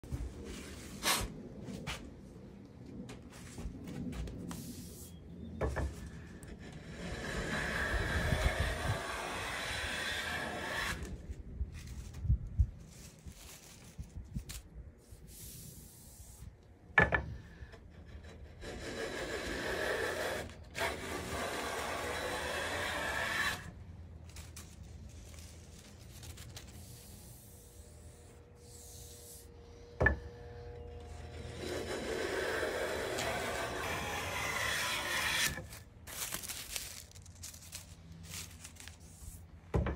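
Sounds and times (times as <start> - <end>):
hand plane shaving wood: 6.6 - 11.1, 18.5 - 23.7, 31.2 - 35.8.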